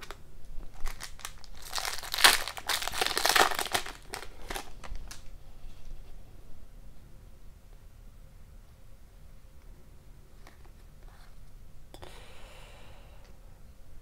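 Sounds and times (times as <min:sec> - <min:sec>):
foil wrapper crinkling and tearing: 0:00.0 - 0:05.3.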